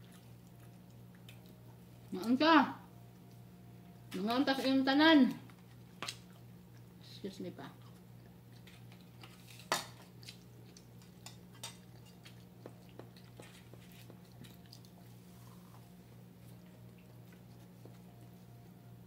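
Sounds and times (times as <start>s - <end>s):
soft chewing: 0.0s - 19.0s
steady low hum: 0.0s - 19.0s
fork clicking on plates: 8.6s - 14.7s.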